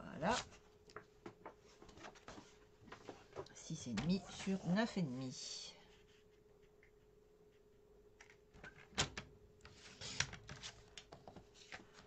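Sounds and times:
paper rustling: 9.6s - 12.0s.

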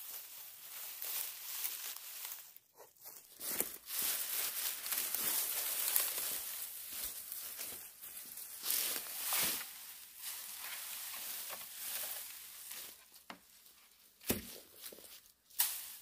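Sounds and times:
dry brush rustling and crackling: 0.0s - 16.0s
footsteps on dry grass: 0.0s - 16.0s.

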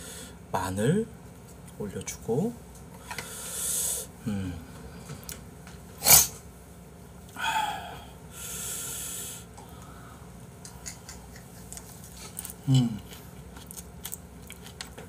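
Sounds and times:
man breathing noisily: 0.0s - 0.4s, 3.0s - 5.2s, 7.4s - 10.4s.

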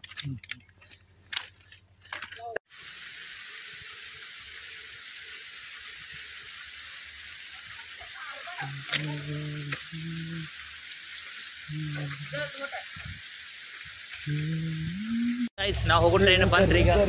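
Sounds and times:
steady water-like hiss: 2.7s - 15.5s.

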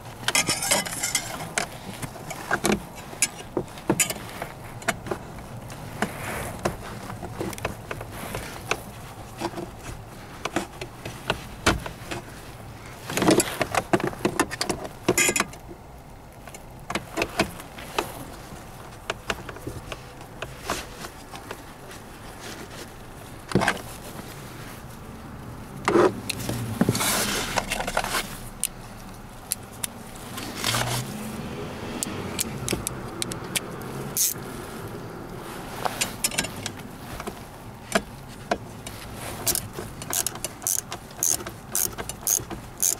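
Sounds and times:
screwdriver and plastic clicks: 39.5s - 42.9s.

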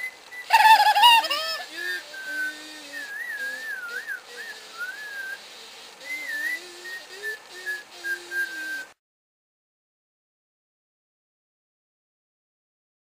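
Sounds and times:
person whistling a tune: 1.2s - 5.4s, 6.0s - 9.0s.

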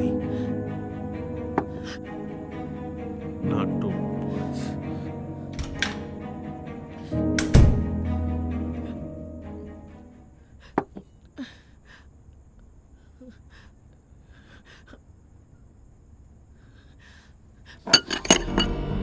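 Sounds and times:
quiet breathing: 10.3s - 12.2s, 12.8s - 15.2s, 16.4s - 18.0s
cutlery clinking on plate: 17.9s - 18.8s.

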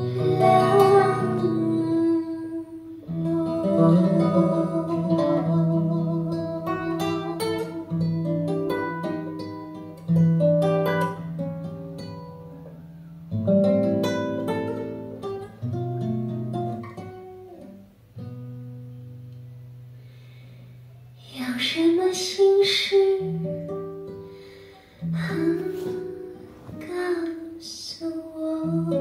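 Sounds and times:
person singing: 0.0s - 8.4s, 25.1s - 29.0s
acoustic guitar chords: 0.0s - 29.0s.

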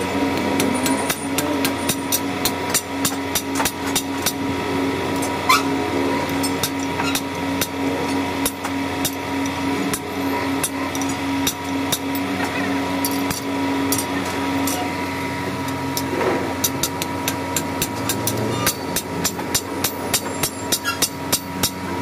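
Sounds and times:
hammer striking steel on anvil: 0.0s - 4.4s, 5.2s - 9.2s, 15.9s - 21.8s
steady machine hum: 0.0s - 22.0s.

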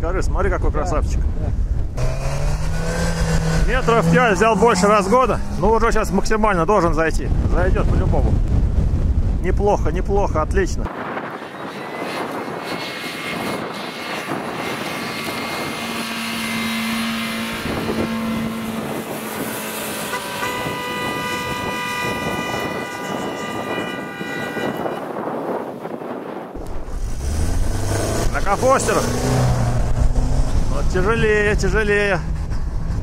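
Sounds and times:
engine revving hard: 2.0s - 6.4s, 11.4s - 23.1s, 26.6s - 32.0s.

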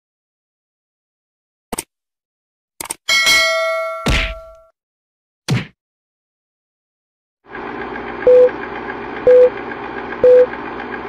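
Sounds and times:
film projector whirr: 7.5s - 11.0s
short beeps: 9.3s - 9.5s, 10.2s - 10.5s.

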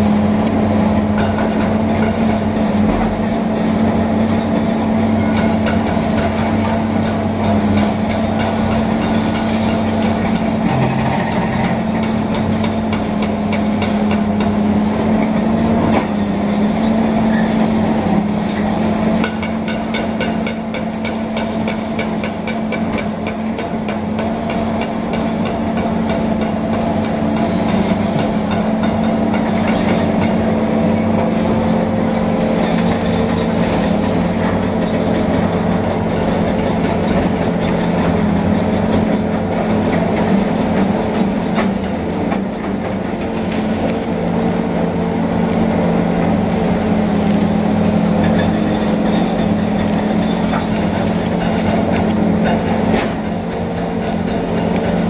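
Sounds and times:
diesel engine drone: 0.0s - 55.0s
metallic clanks and knocks: 5.3s - 14.5s.

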